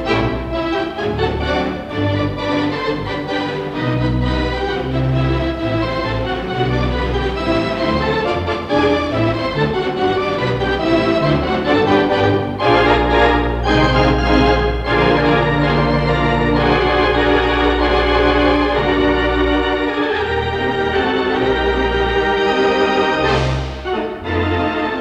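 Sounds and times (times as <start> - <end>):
theatre organ playing held chords: 0.0 - 25.0.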